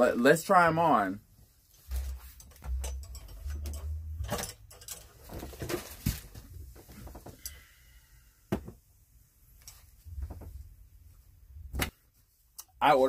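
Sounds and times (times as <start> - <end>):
fabric rustling: 1.3 - 4.2.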